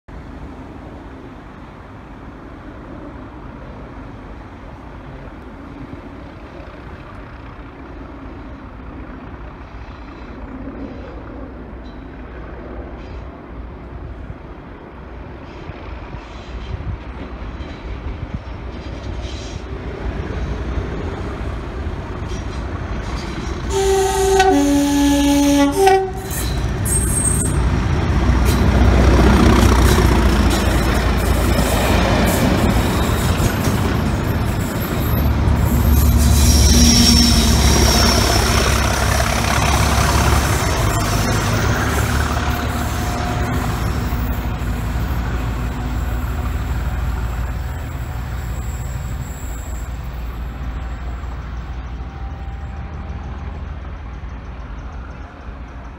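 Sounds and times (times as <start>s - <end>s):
diesel locomotive engines rumbling: 0.1s - 55.9s
locomotive horn tones: 23.6s - 27.6s, 35.3s - 48.6s.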